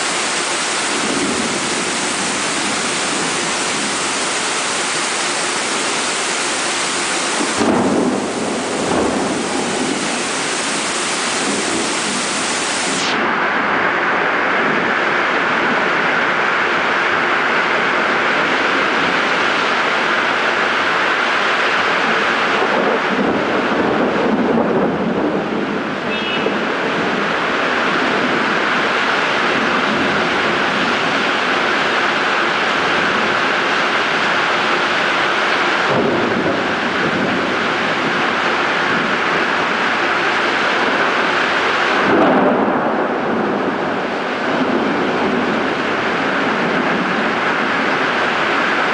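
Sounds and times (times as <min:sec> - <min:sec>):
heavy rain pouring: 0:00.0 - 0:48.9
deep rumble: 0:06.8 - 0:48.9.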